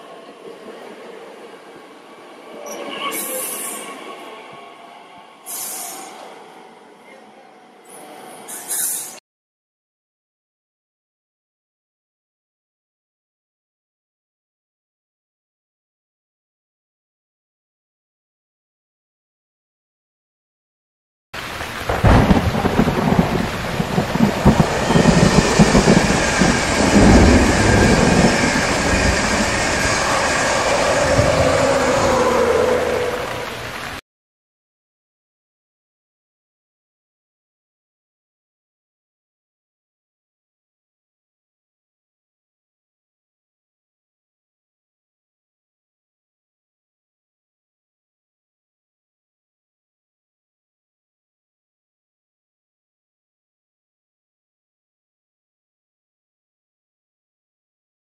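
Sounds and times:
high hiss surges: 5.5 - 6.2, 21.4 - 34.0
train wheels rumbling on rails: 21.5 - 34.0
locomotive whine falling in pitch: 21.9 - 34.0.

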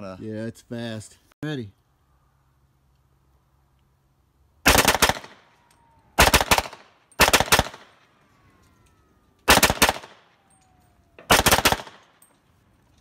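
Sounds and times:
rapid gunshots: 4.7 - 5.4, 6.2 - 7.9, 9.5 - 10.2, 11.3 - 12.0.

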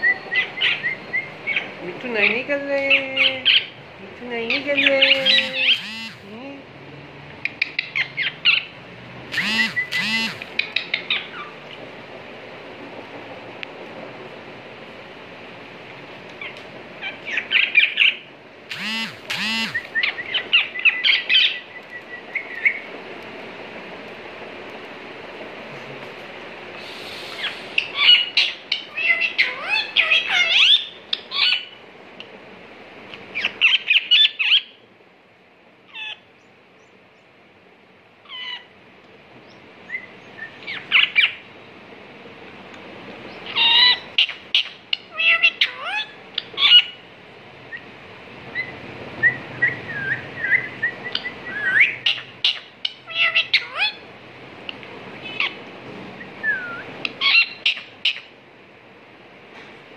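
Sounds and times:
parakeet squawks and chirps: 0.0 - 1.7, 4.8 - 6.3, 9.3 - 11.5, 27.1 - 31.8, 33.4 - 34.7, 38.3 - 38.7, 43.4 - 47.0, 50.4 - 54.0, 56.6 - 58.3.

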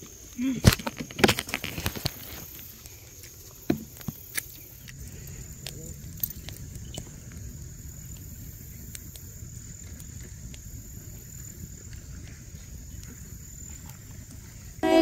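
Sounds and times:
campfire crackling and popping: 0.0 - 15.0
high-pitched whine: 14.8 - 15.0.

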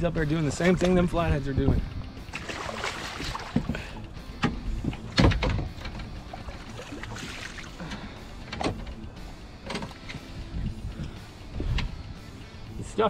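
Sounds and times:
fish knocking and splashing: 2.3 - 7.8.

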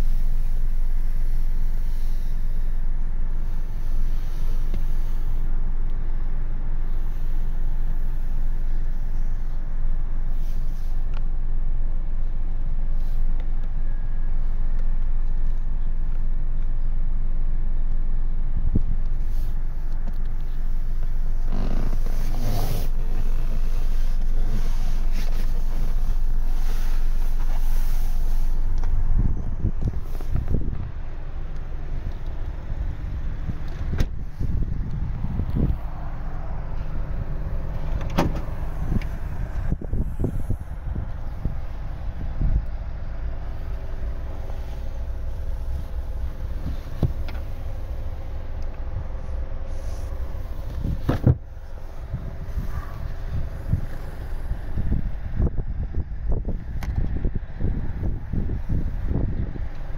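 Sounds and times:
wind buffeting microphone: 20.3 - 59.9.

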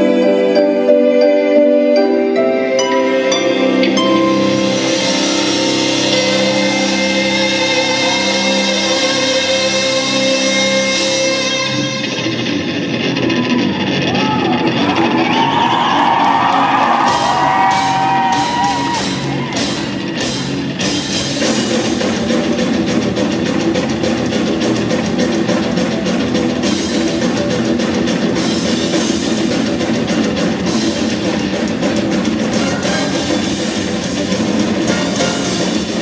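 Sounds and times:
amplified cellos playing metal: 0.0 - 13.0
drum kit: 3.8 - 36.0.

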